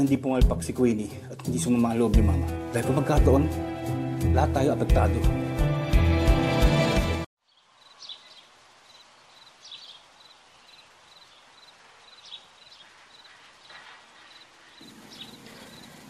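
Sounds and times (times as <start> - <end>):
soft steady hiss: 7.4 - 16.0.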